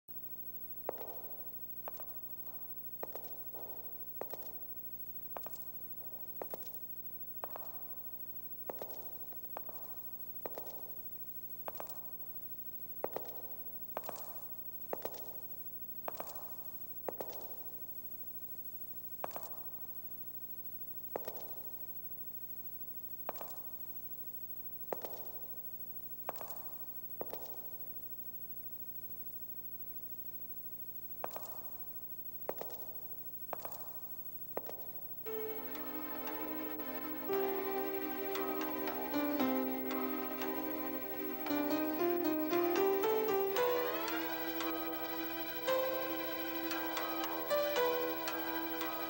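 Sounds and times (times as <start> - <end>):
footsteps on stage floor: 0.8 - 20.3, 20.9 - 22.2, 22.8 - 28.1, 31.1 - 43.8.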